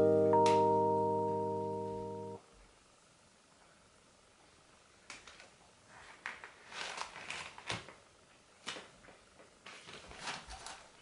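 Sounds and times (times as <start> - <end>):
newspaper rustling: 5.2 - 8.0, 8.6 - 11.0.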